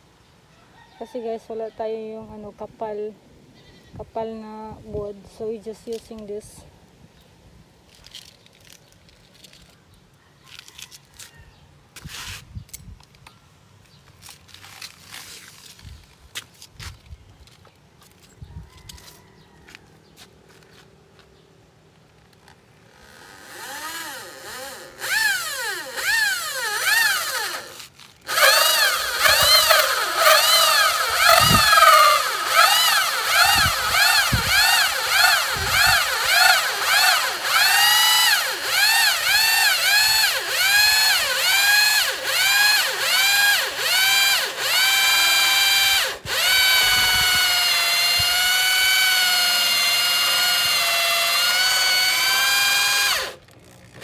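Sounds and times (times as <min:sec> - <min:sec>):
electric drill boring into wood: 0:22.9 - 0:54.0.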